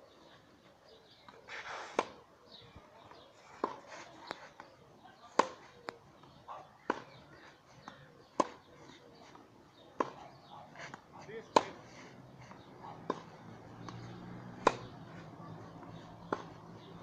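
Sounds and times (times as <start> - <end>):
racket hitting tennis ball: 1.6 - 2.2, 6.8 - 7.2, 7.8 - 8.6, 9.9 - 17.0
tennis ball bouncing: 1.9 - 2.2, 3.6 - 4.4, 5.3 - 17.0.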